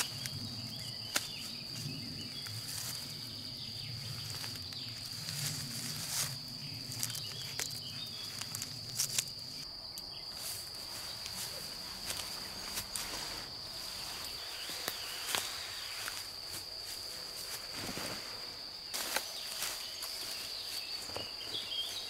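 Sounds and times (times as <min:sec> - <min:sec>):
crickets chirping: 0:00.0 - 0:22.0
footsteps in grass: 0:04.1 - 0:09.6, 0:10.3 - 0:22.0.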